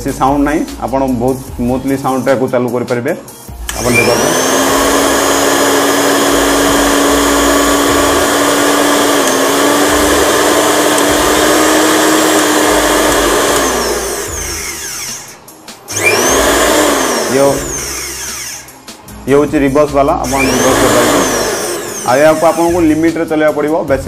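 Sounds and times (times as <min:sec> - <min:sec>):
mixer grinder motor running: 0:03.6 - 0:19.1, 0:20.2 - 0:23.2.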